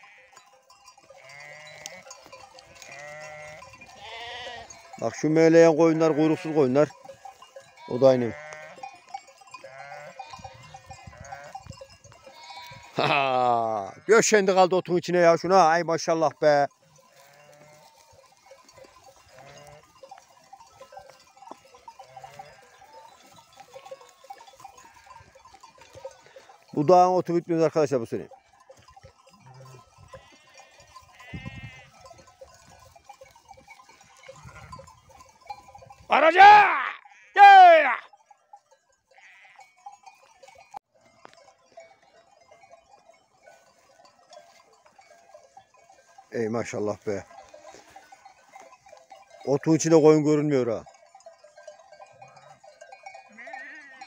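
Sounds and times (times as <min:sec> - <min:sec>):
faint sheep bleats: 0:00.0 - 0:00.4, 0:01.1 - 0:02.1, 0:02.7 - 0:06.9, 0:07.8 - 0:09.0, 0:09.6 - 0:14.4, 0:17.1 - 0:18.1, 0:19.2 - 0:19.9, 0:22.0 - 0:24.1, 0:29.4 - 0:32.1, 0:36.1 - 0:38.1, 0:39.1 - 0:39.7, 0:53.3 - 0:54.0
light tinkling: 0:00.0 - 0:13.5, 0:14.2 - 0:36.1, 0:38.1 - 0:54.0
sheep grazing in grass: 0:00.0 - 0:54.0.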